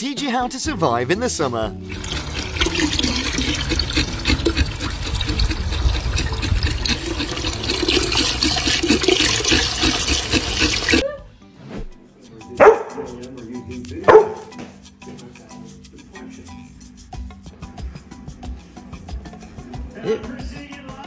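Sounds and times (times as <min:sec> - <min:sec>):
water from hose splashing into barrel: 0:01.8 - 0:11.0
dog barking: 0:12.6 - 0:13.1, 0:14.0 - 0:14.6.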